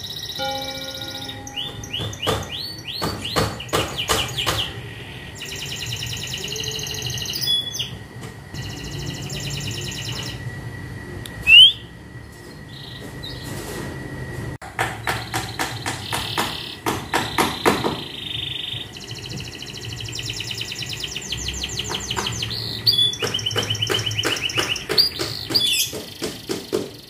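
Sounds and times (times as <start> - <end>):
faint steady high tone: 0.0 - 2.1
canary singing: 0.0 - 8.0, 8.6 - 10.5, 11.4 - 11.9, 15.1 - 26.6.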